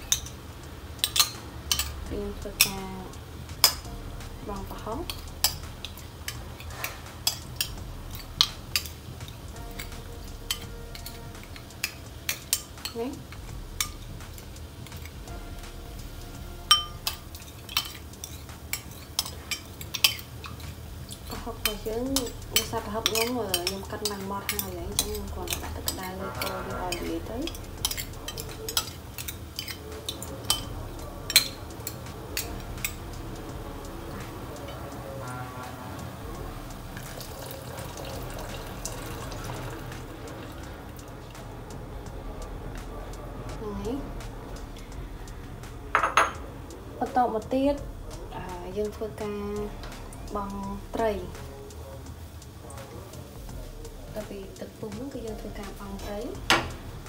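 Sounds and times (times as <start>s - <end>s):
steady low hum: 0.0s - 37.4s, 38.2s - 52.4s, 53.0s - 57.0s
steel ladle clinking on ceramic: 16.7s - 30.7s.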